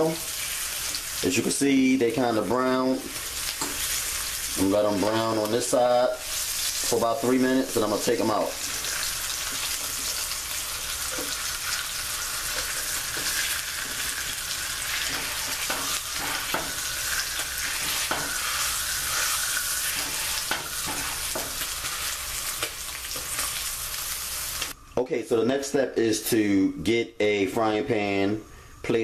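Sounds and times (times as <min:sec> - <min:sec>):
pork chops sizzling: 0:00.0 - 0:24.8
fork scraping skillet: 0:03.0 - 0:05.2, 0:08.6 - 0:24.8.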